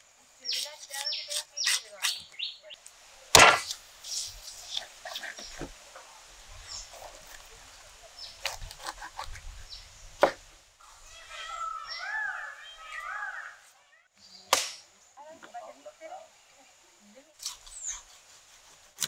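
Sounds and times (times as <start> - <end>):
faint bird chirps: 0.4 - 2.8, 10.8 - 15.5, 16.3 - 18.2
knife scraping fish skin: 0.5 - 2.2, 8.4 - 9.4.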